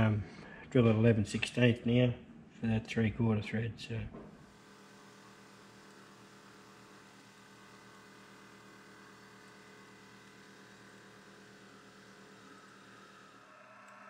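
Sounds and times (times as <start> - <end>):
drill boring metal: 4.4 - 14.0
faint hum of metal lathe running: 4.4 - 14.0.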